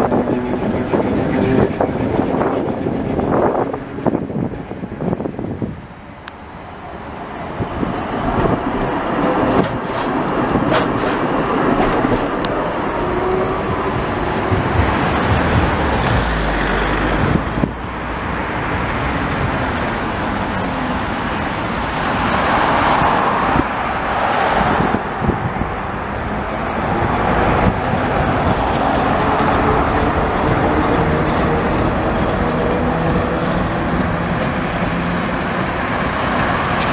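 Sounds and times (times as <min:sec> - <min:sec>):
road traffic: 0:00.0 - 0:36.9
trams rumbling on track: 0:00.0 - 0:36.9
tram wheels squealing on rails: 0:06.4 - 0:17.3, 0:19.0 - 0:23.6, 0:24.5 - 0:36.9.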